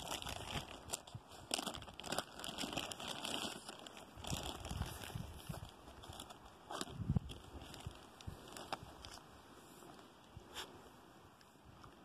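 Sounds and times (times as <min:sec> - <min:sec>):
food wrapper crinkling: 0:00.0 - 0:09.2.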